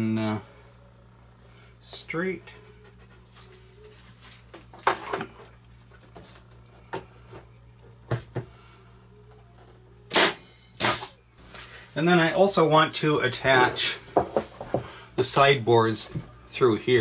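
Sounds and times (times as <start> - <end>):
nail gun firing: 10.1 - 11.1.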